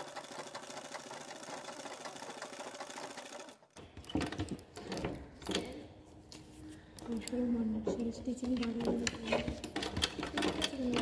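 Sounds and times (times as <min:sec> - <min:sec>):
sewing machine stitching: 0:00.0 - 0:05.0.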